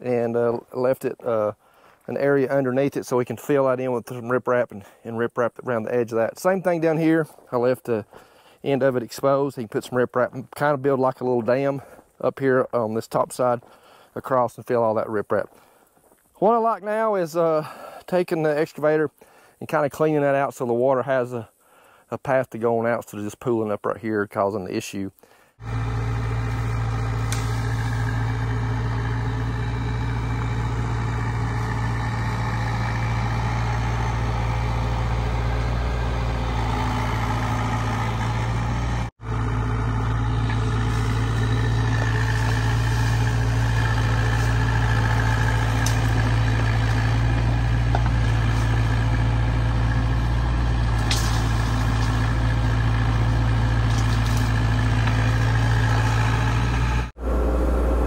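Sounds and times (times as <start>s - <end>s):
excavator diesel engine running: 25.6s - 58.0s.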